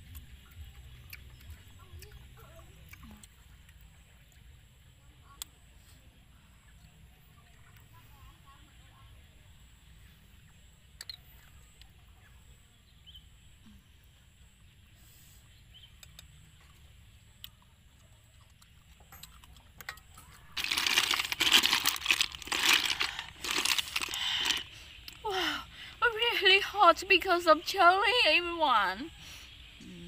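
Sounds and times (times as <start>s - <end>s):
snail shells clattering: 19.9s - 25.2s.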